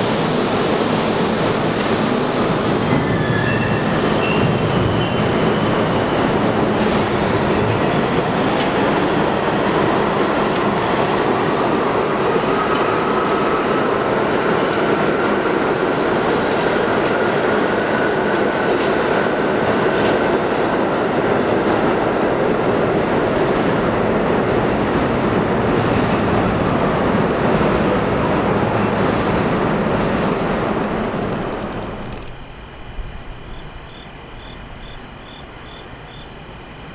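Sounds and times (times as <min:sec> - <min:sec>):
train wheels rumbling on rails: 0:00.0 - 0:36.9
faint high wheel squeals: 0:02.9 - 0:05.3, 0:11.6 - 0:12.3.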